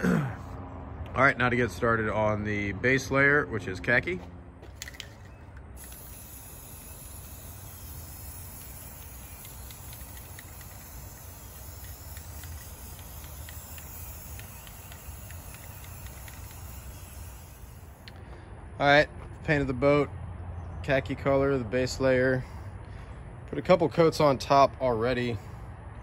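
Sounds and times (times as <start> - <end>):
spray paint can hissing: 4.8 - 18.1.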